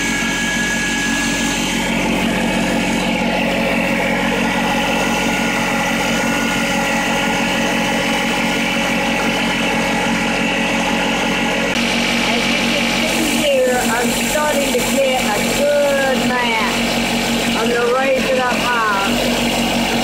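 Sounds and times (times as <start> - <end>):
tractor engine running steadily: 0.0 - 20.0.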